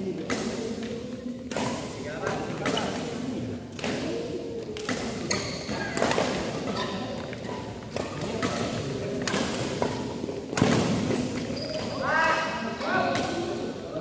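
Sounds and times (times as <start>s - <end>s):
racket hitting shuttlecock: 0.2s - 12.5s.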